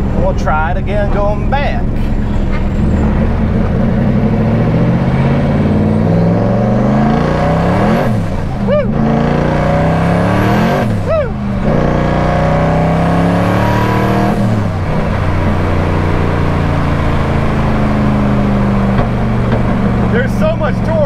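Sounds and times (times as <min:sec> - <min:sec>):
car engine pulling hard: 0:00.0 - 0:21.0.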